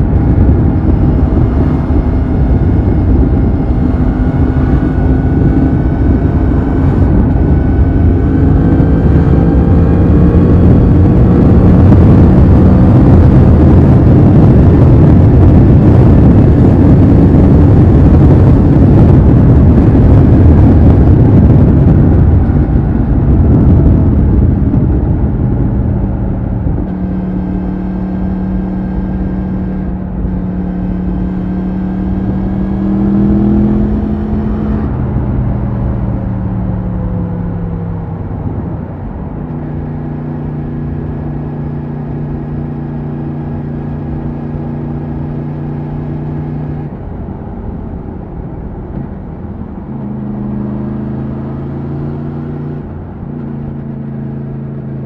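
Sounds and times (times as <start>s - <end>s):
motorcycle engine drone: 0.0s - 55.0s
wind rush: 0.0s - 55.0s.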